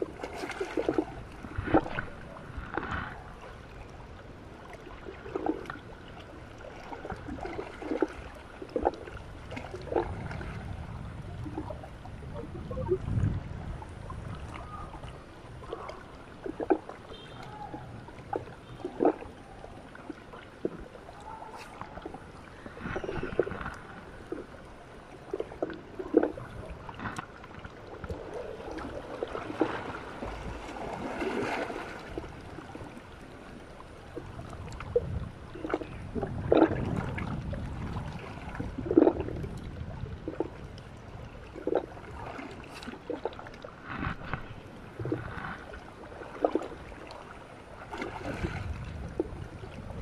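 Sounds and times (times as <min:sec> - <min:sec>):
water splashes: 0:00.0 - 0:50.0
waves lapping against rocks: 0:00.0 - 0:50.0.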